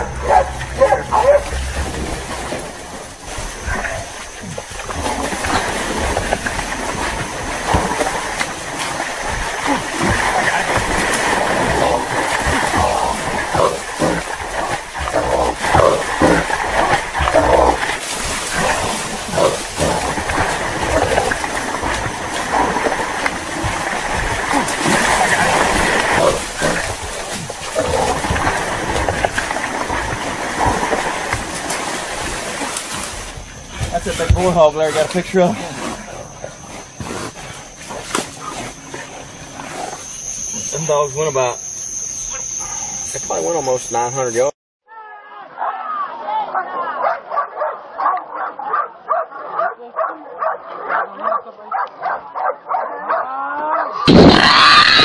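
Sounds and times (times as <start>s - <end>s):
person running through mud: 0.0s - 35.2s
dogs barking and baying: 0.0s - 43.8s, 46.5s - 54.1s
wild boar: 0.0s - 44.4s, 45.6s - 55.0s.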